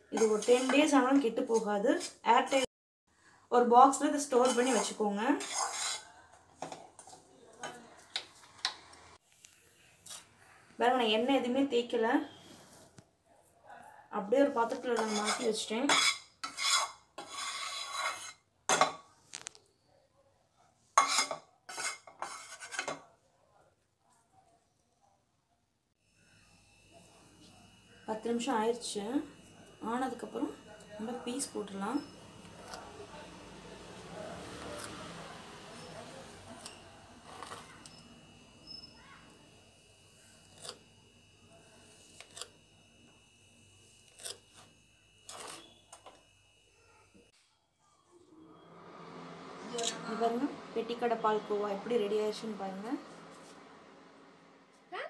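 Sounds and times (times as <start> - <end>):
spoon scraping metal tray: 0.0 - 2.7, 4.0 - 6.2, 14.6 - 18.9, 21.0 - 23.0, 36.6 - 38.0, 40.4 - 40.8, 44.0 - 45.8.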